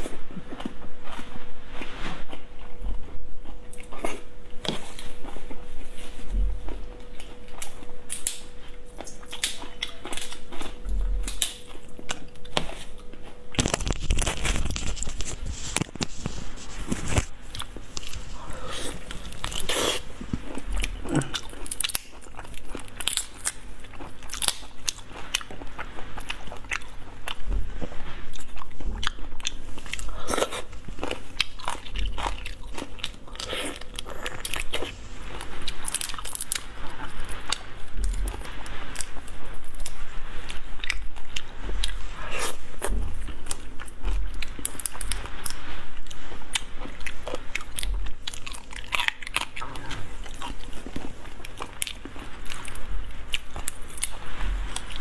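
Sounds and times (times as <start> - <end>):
chewing: 0.0 - 55.0
crunching through shrimp shells: 6.7 - 45.6.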